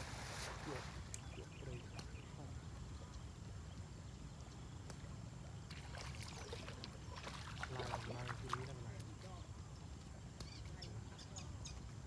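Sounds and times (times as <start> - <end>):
fish splashing in water: 5.6 - 9.2.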